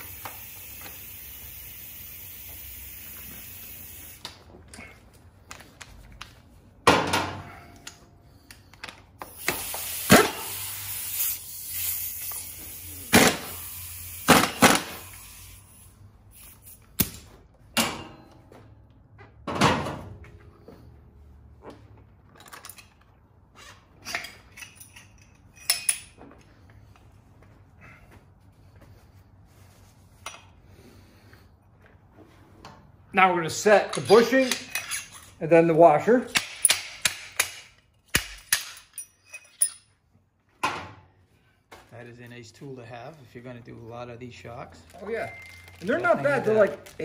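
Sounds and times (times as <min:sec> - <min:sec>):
hiss: 0:00.0 - 0:04.4, 0:09.2 - 0:16.8
metal tools knocking and clinking: 0:24.0 - 0:26.2, 0:38.4 - 0:39.9.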